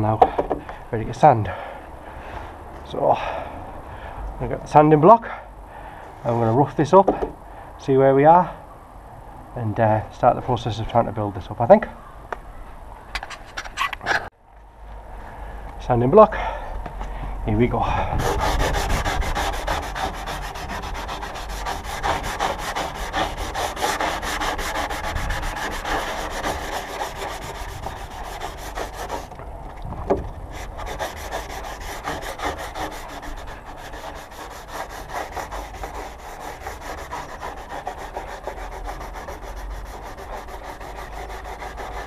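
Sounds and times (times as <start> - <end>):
sandpaper scratching strokes: 18.2 - 29.3, 30.5 - 42.0.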